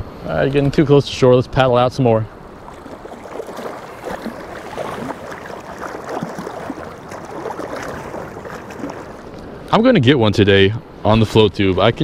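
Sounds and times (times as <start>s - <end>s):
wind and sea noise: 0.0s - 12.0s
ocean water splashing: 2.3s - 9.8s.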